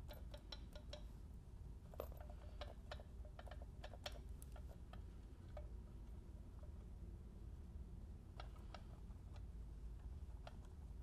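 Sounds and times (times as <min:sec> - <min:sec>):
light clicks and taps on metal cover: 0:00.0 - 0:01.1.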